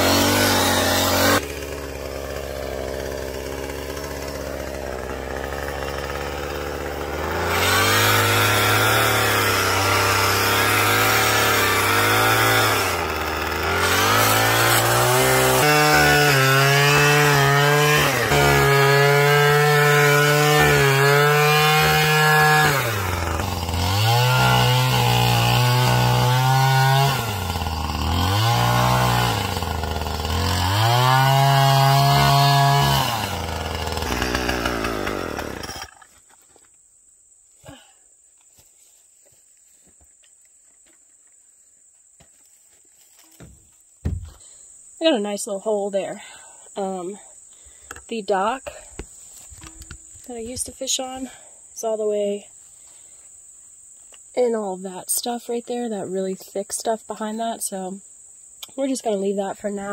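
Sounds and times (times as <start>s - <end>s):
string trimmer cutting weeds: 0.0s - 36.4s.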